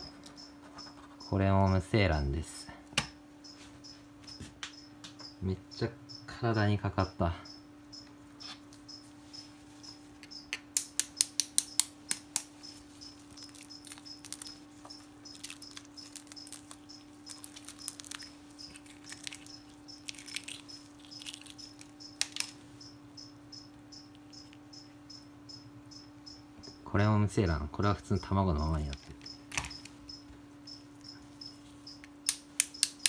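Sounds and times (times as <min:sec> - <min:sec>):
eggshell cracking and scraping: 0:10.2 - 0:22.6
metal blade tapping eggshell: 0:10.5 - 0:12.5.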